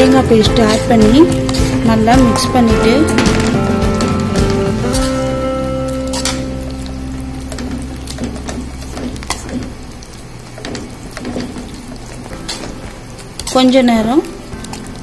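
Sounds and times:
low hum: 0.6 - 11.2.

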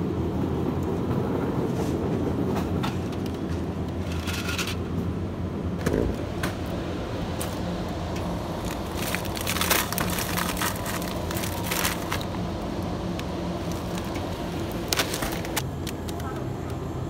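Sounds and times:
freezer cases humming: 3.0 - 17.0
plastic packaging crinkling: 7.3 - 16.4.

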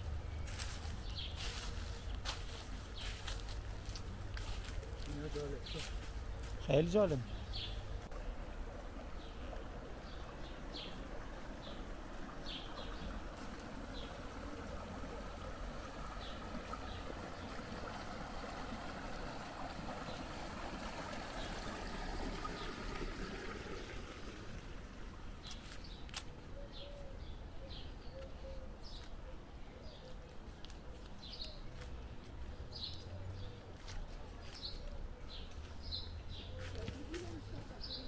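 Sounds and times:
stream water running: 0.0 - 26.6
small birds chirping: 0.1 - 8.1, 9.1 - 18.0, 25.4 - 38.0.

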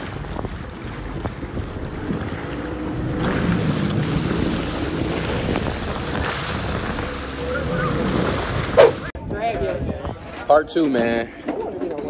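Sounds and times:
jet ski engine running: 0.0 - 9.1
wind buffeting microphone: 0.0 - 12.0.

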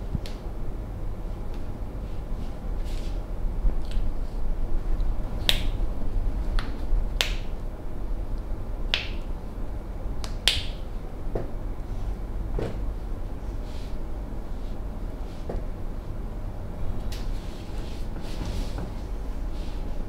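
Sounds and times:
steady low hum: 0.0 - 20.0
hands snapping clicks: 5.5 - 5.8, 6.6 - 7.5, 8.9 - 9.3, 10.2 - 10.8.

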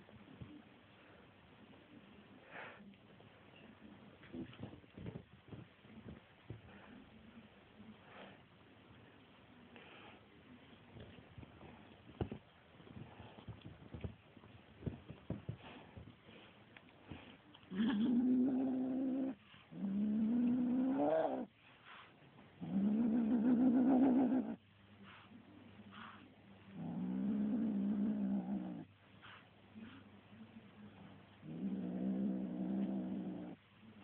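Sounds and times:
kitten growling: 17.1 - 21.6, 22.6 - 24.6, 26.7 - 28.9, 31.4 - 33.6.

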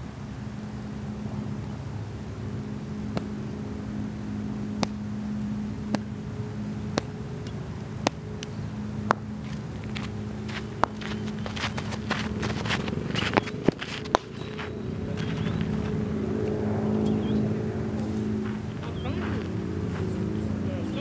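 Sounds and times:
steady low hum: 0.0 - 21.0
footsteps walking: 9.1 - 17.1, 17.9 - 20.4.

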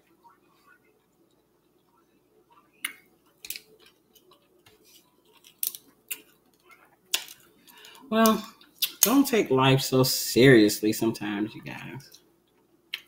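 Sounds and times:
chewing: 2.8 - 7.8
shells snapping apart: 5.4 - 6.3.

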